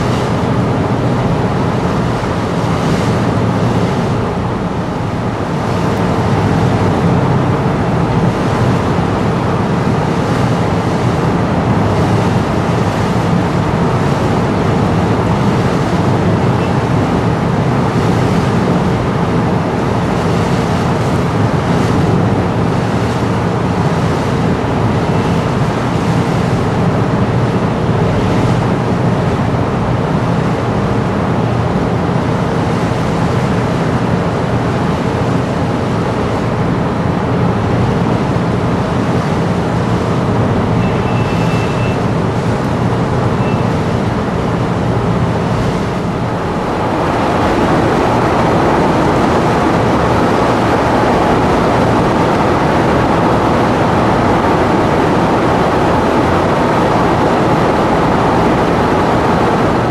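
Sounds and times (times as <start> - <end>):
ship engine humming: 0.0 - 59.9
water rushing along hull: 0.0 - 59.9
wind on microphone: 0.0 - 59.9.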